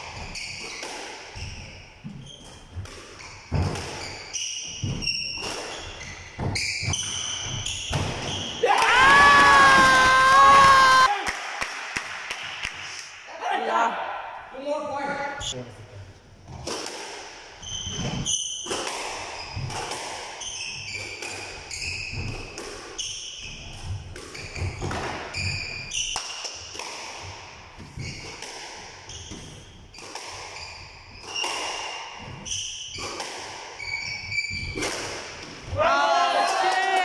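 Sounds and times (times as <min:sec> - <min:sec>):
shoes squeaking on court: 0:00.0 - 0:08.6, 0:17.6 - 0:26.2, 0:27.8 - 0:28.5, 0:29.1 - 0:34.9
squash ball hits: 0:02.8 - 0:04.2, 0:06.4 - 0:09.0, 0:34.6 - 0:35.8.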